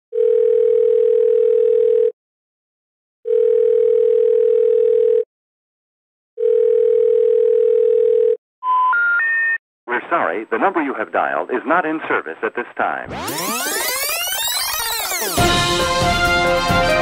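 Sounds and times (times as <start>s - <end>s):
telephone line tone: 0.1s - 2.2s, 3.3s - 5.3s, 6.4s - 9.6s.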